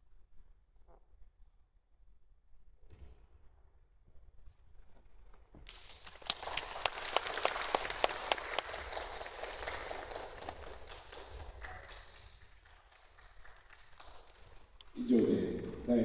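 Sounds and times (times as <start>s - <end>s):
audience applauding: 5.7s - 15.2s.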